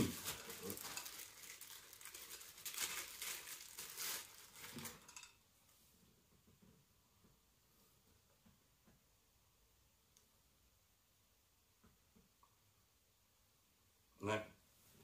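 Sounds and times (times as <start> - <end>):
plastic bag crinkling: 0.0 - 5.4.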